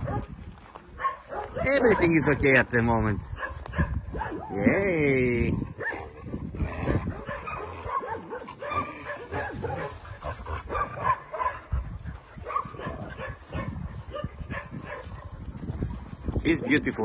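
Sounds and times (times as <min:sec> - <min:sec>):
dogs whining and yipping: 0:05.8 - 0:11.6.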